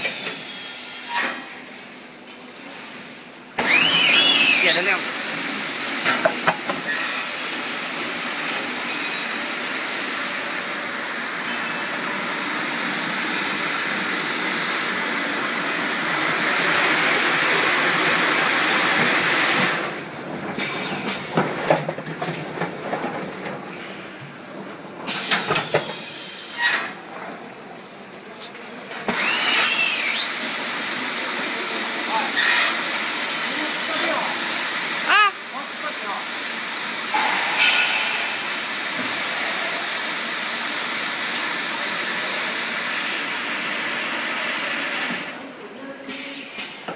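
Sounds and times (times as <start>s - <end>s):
water jets spraying: 3.6s - 8.8s, 9.4s - 21.2s.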